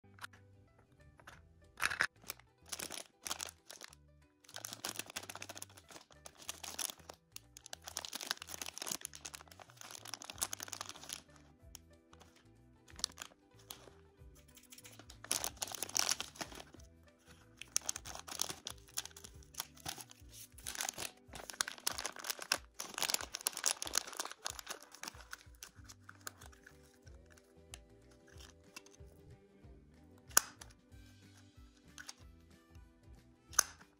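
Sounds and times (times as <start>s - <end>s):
background music: 0.0s - 33.9s
plastic package crinkling: 1.8s - 11.4s, 12.2s - 16.8s, 17.4s - 27.5s, 28.2s - 29.0s.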